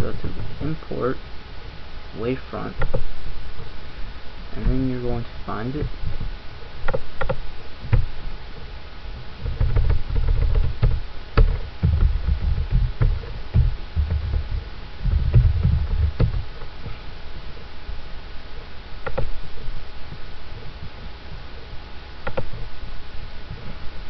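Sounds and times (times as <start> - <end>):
low rumble on microphone: 0.0 - 24.0
keyboard and mouse clicks: 19.0 - 19.3, 22.2 - 22.6.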